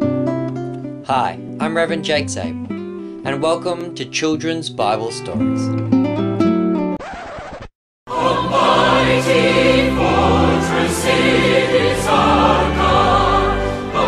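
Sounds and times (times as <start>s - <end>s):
theme music with choir singing: 8.1s - 14.0s.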